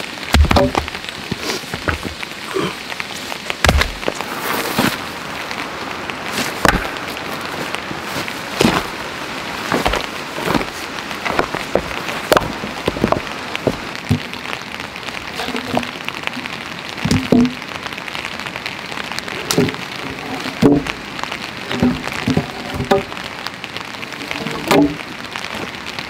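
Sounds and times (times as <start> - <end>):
rushing water: 0.0 - 26.0
rocks set down on stony ground: 0.3 - 2.3, 3.5 - 5.0, 6.3 - 9.0, 9.7 - 14.4
log knocking on stones: 0.3 - 2.7, 3.4 - 5.0, 6.3 - 9.0, 9.7 - 14.4, 15.3 - 16.0, 17.0 - 17.6, 19.4 - 21.0, 21.6 - 23.2, 24.4 - 25.7.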